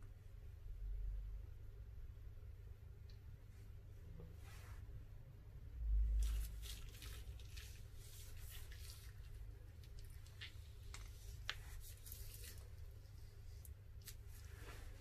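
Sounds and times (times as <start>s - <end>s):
piping bag squishing paste: 6.2s - 14.3s.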